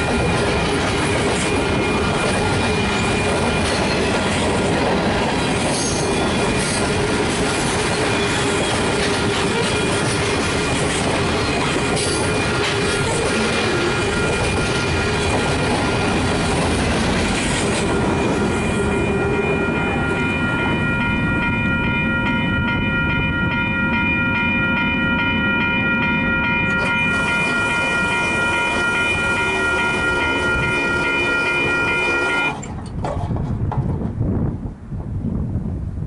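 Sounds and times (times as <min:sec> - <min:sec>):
freight train rumbling on rails: 0:00.0 - 0:36.0
high-pitched ringing tones: 0:17.8 - 0:32.6.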